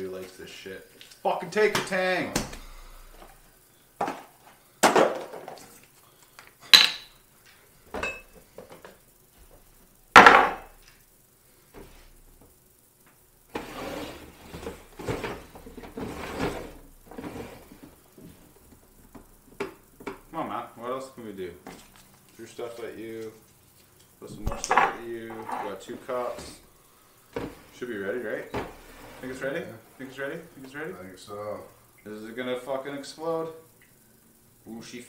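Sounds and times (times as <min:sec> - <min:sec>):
cups knocking on tiled counter: 0:06.8 - 0:07.1, 0:10.2 - 0:10.8, 0:24.4 - 0:25.6.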